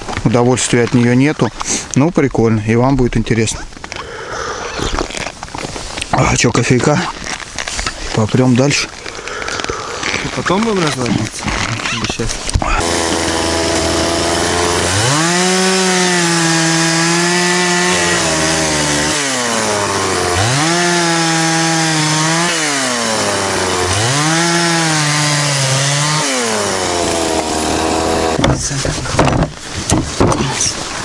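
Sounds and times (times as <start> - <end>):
chainsaw idling and revving: 12.8 - 28.5.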